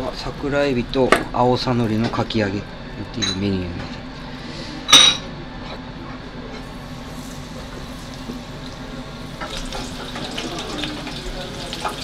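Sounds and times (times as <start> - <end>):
kitchen hum and hiss: 0.0 - 12.0
fritter sizzling in hot oil: 6.7 - 12.0.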